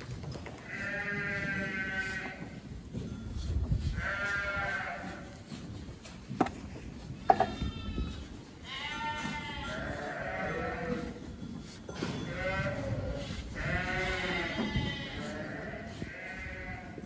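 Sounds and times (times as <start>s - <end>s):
sheep bleating: 0.6s - 2.6s, 3.9s - 5.4s, 7.3s - 11.3s, 12.1s - 17.0s.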